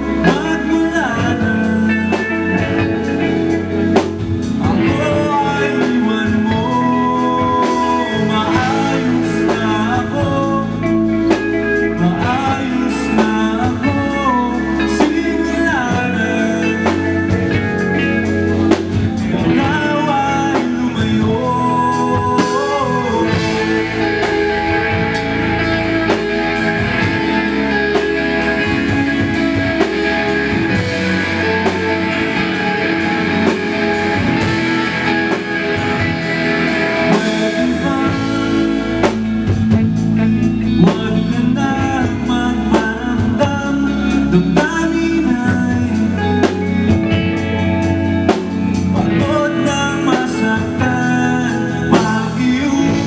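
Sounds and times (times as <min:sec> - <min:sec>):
live rock band playing: 0:00.0 - 0:53.0
person singing: 0:00.0 - 0:53.0.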